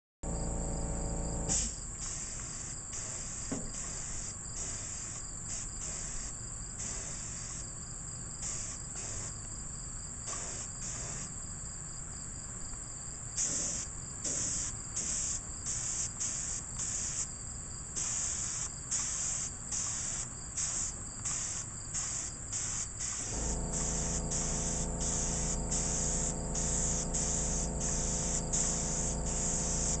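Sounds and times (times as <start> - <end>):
air compressor motor hum: 0.2 - 1.8, 23.0 - 30.0
paint spray gun hissing: 0.3 - 7.6, 8.4 - 9.3, 10.3 - 11.3, 13.4 - 17.3, 18.0 - 30.0
insect chirping: 0.3 - 30.0.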